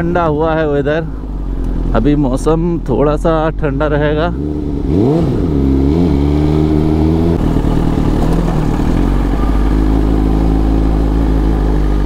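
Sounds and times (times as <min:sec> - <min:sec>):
motorcycle engine running: 0:03.4 - 0:12.0.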